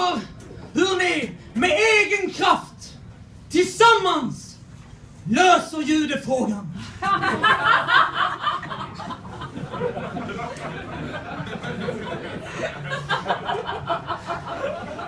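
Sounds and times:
audience laughing: 7.0s - 15.0s.

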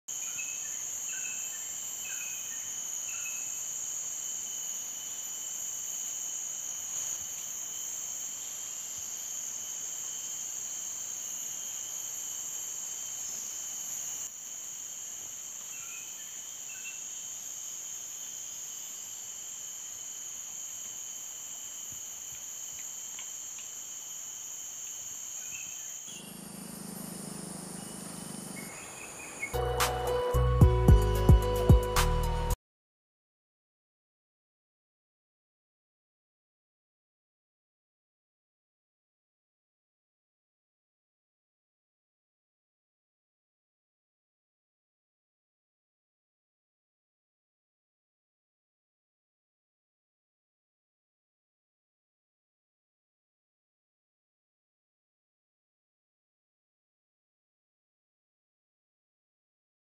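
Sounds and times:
insect chorus drone: 0.1s - 32.6s
bird chirps: 25.4s - 29.6s.

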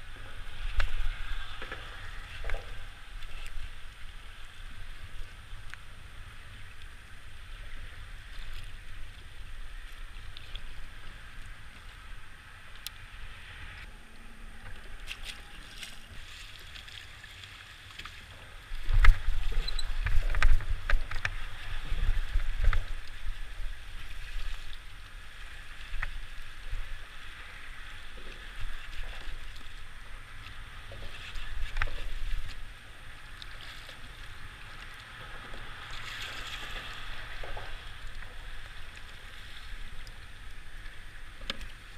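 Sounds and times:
water lapping against kayak hull: 0.0s - 41.9s
wind buffeting microphone: 18.6s - 27.3s.

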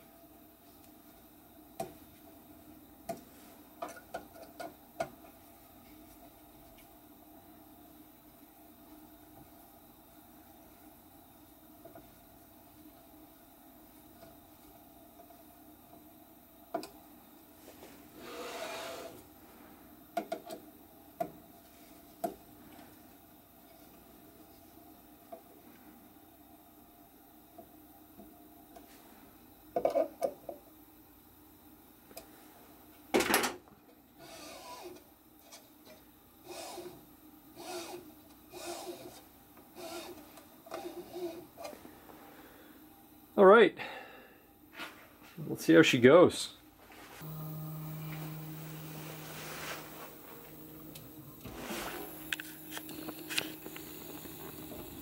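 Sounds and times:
brief scraping rub: 18.2s - 19.2s, 47.0s - 53.7s
carriage sliding on rods: 18.2s - 19.2s.

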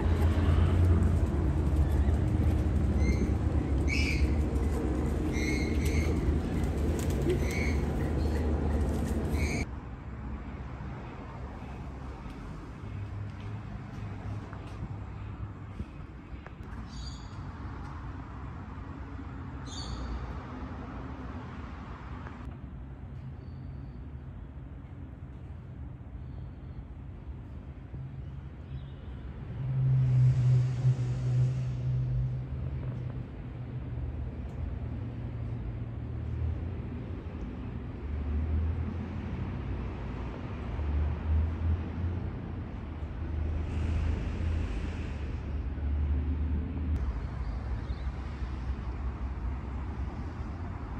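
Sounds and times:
distant traffic rumble: 0.0s - 50.9s
passing vehicle hiss: 29.5s - 32.9s, 42.8s - 50.9s.

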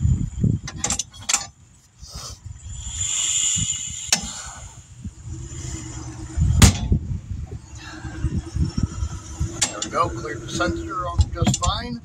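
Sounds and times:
air hissing: 2.0s - 11.7s
tire changing machine working: 2.4s - 12.0s.

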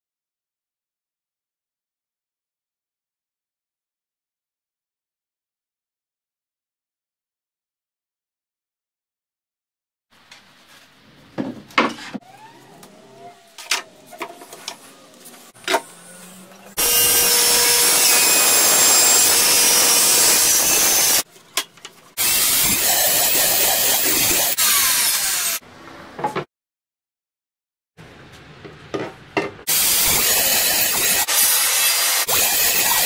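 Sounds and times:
circular saw cutting: 15.8s - 21.3s, 22.2s - 25.6s, 29.7s - 33.0s.

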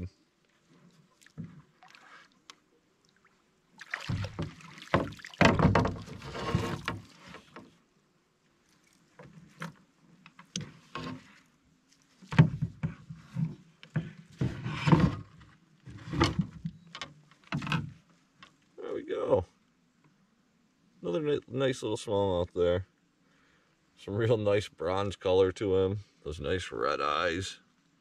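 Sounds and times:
water splashing: 1.1s - 7.2s
knocks against a canoe: 4.0s - 7.7s, 12.2s - 16.7s.

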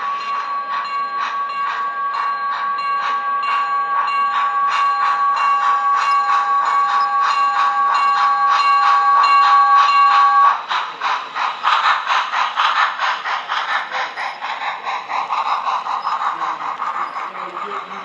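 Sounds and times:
steam locomotive whistle: 0.0s - 10.6s
rhythmic locomotive chuffing: 0.0s - 18.0s
train cars clattering: 0.0s - 18.0s.

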